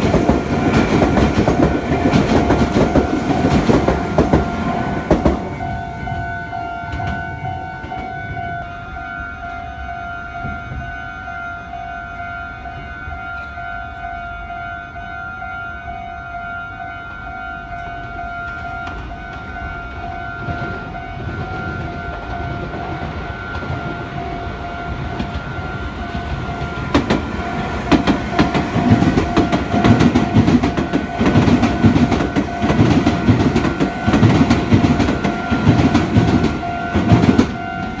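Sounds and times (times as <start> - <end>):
train wheels clattering over rail joints: 0.0 - 5.5, 26.1 - 38.0
electric train passing: 0.0 - 38.0
level-crossing alarm ringing: 0.0 - 38.0.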